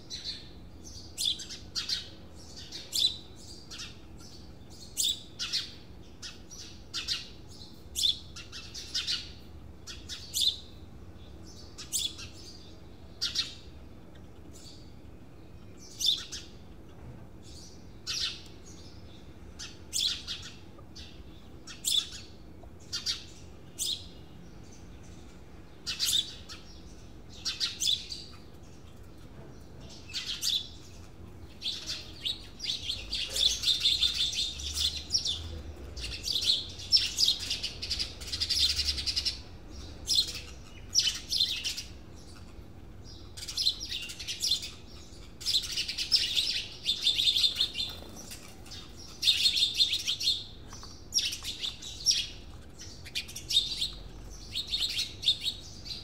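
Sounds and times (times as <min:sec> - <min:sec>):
birds chirping: 0:00.0 - 0:56.0.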